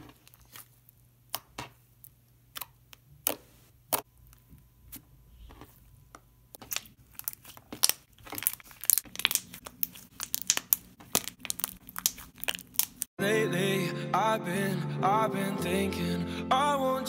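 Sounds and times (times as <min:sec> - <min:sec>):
slime squishing with sticky clicks: 0:00.0 - 0:13.1.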